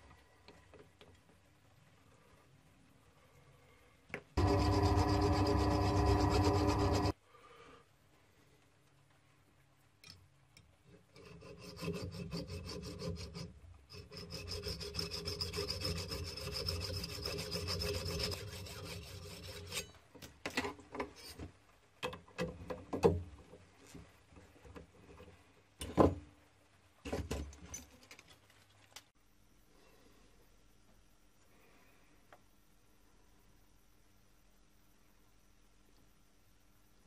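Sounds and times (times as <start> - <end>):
hacksaw rasping through metal: 11.2 - 20.0.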